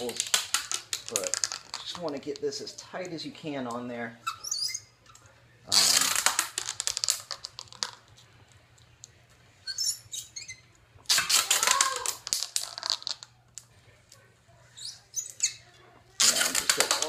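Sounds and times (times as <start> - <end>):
tape peeling off a roll: 5.7 - 7.8, 9.7 - 13.2.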